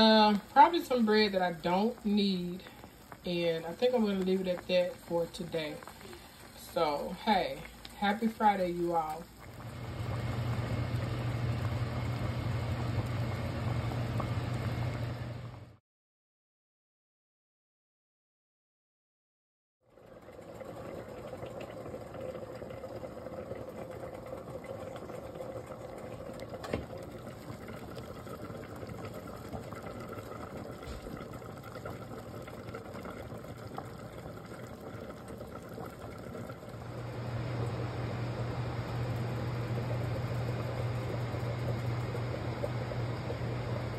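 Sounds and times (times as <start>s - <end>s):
pot bubbling at a rolling boil: 0.0s - 15.8s, 19.8s - 43.9s
steady hum: 36.7s - 43.9s.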